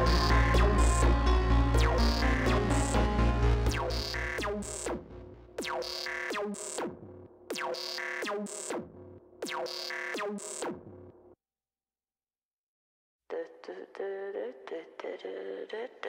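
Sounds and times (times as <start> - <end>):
synthesizer falling pitch sweeps: 0.0 - 6.5
electronic pop music: 0.0 - 6.7.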